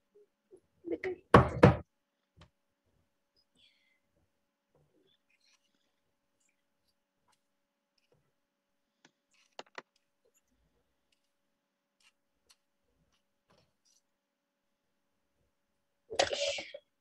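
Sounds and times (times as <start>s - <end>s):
faint clicks and taps: 6.4s - 14.1s.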